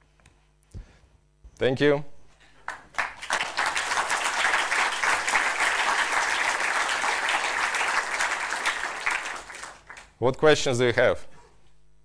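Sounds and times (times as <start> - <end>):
audience applauding: 2.6 - 10.2.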